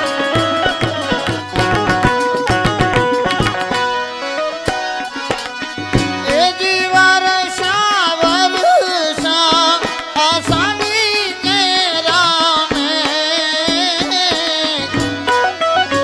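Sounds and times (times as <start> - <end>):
harmonium: 0.0 - 16.0
tabla strokes: 0.1 - 15.4
man singing with vibrato: 6.2 - 15.0.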